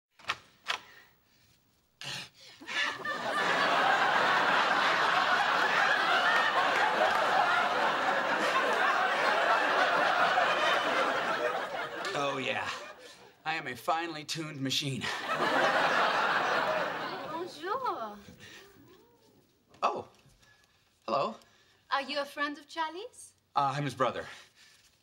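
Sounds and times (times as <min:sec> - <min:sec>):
studio audience laughing: 0:02.6 - 0:13.4, 0:15.0 - 0:17.9.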